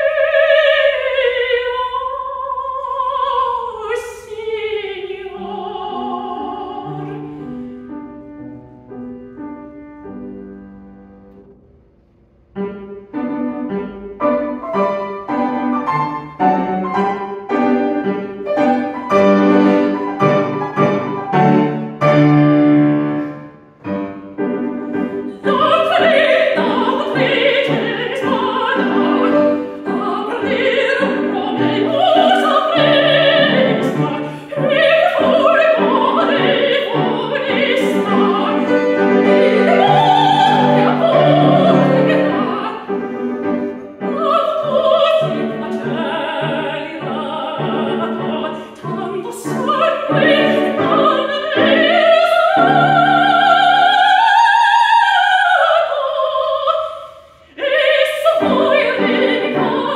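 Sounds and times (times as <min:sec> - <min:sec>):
woman singing opera: 0:00.0 - 0:07.5, 0:24.9 - 0:59.9
grand piano: 0:00.0 - 0:59.9.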